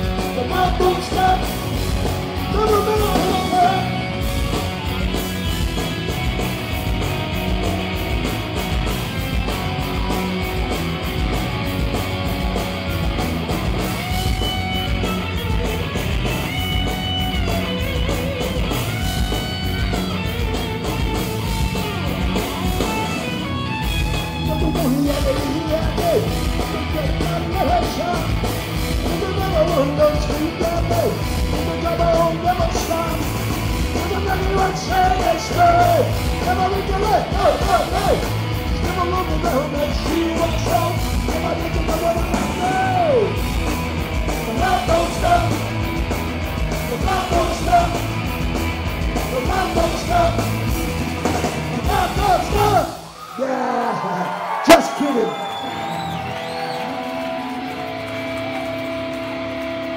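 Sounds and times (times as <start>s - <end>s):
punk rock band playing: 0.0s - 53.2s, 54.9s - 59.9s
singer shouting vocals: 0.3s - 1.6s, 2.4s - 4.1s, 24.4s - 28.3s, 29.0s - 33.3s, 34.0s - 43.4s, 44.4s - 45.7s, 46.9s - 48.1s, 49.3s - 50.6s, 51.8s - 56.1s.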